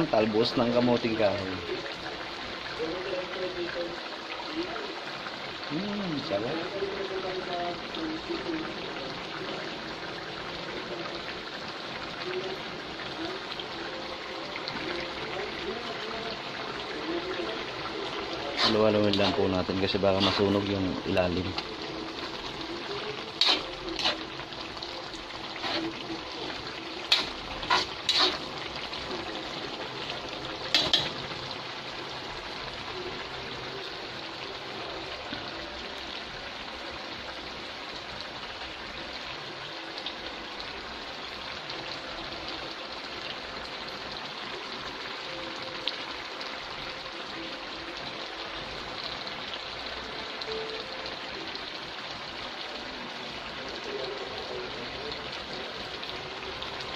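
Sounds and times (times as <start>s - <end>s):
pot simmering and bubbling: 0.0s - 56.9s
utensil scraping metal pot: 18.0s - 20.7s, 21.5s - 29.6s, 30.7s - 31.3s.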